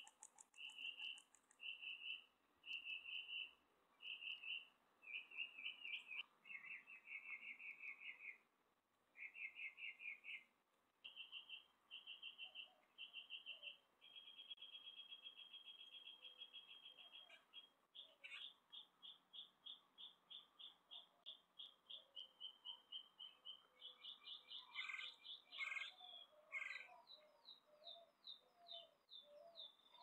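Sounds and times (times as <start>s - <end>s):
faint mockingbird song: 0.0s - 8.5s, 9.1s - 30.0s.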